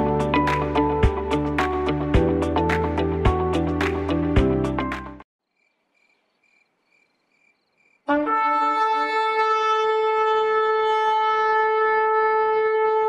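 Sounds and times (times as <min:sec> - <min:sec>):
faint chirps: 0:05.5 - 0:08.0
shofar blast: 0:08.1 - 0:13.0.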